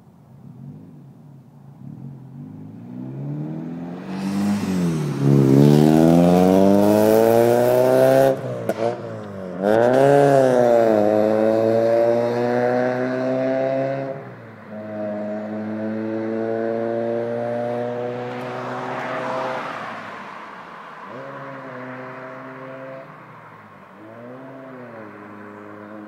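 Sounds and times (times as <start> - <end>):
car engine accelerating hard: 2.4 - 20.3.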